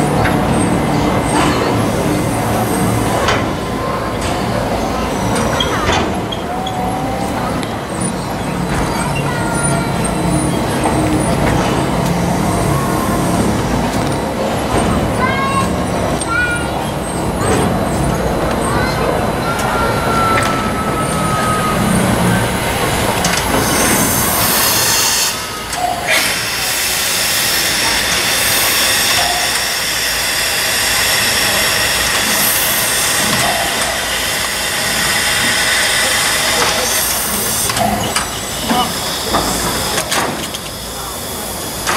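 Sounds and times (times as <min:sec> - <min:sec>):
steam hissing: 0:19.4 - 0:41.9.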